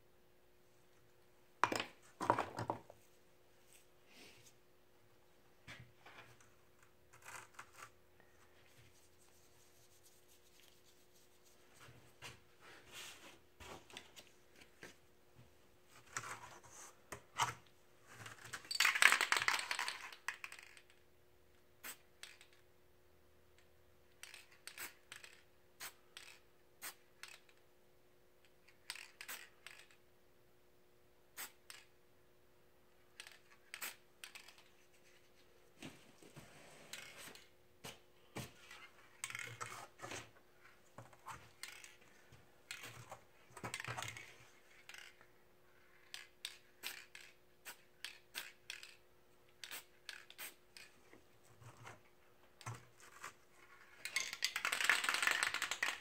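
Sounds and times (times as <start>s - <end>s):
spray paint can hissing: 49.6s - 50.6s.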